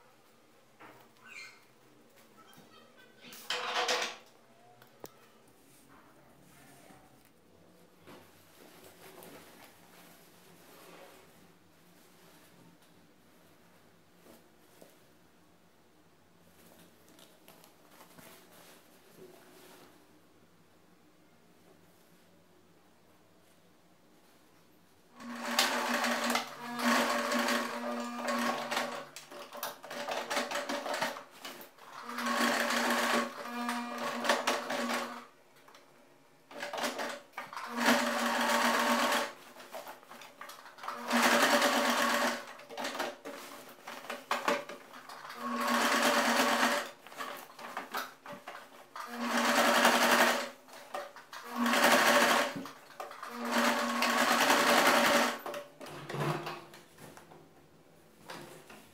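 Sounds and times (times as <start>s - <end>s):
sewing machine stitching: 25.2s - 35.3s, 36.5s - 56.6s.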